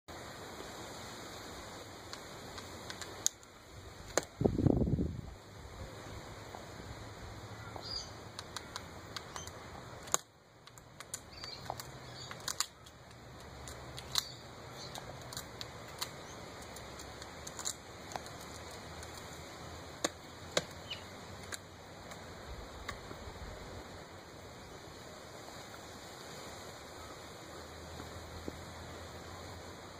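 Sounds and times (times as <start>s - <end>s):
faint steady hiss: 0.1s - 29.9s
snail shell knocked and cracking: 8.3s - 19.4s, 20.0s - 20.8s.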